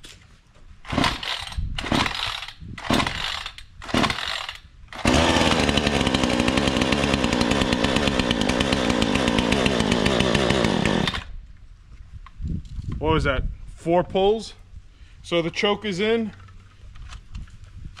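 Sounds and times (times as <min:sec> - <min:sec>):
starter cord ripping: 0:00.9 - 0:06.6
chainsaw engine running: 0:00.9 - 0:11.4.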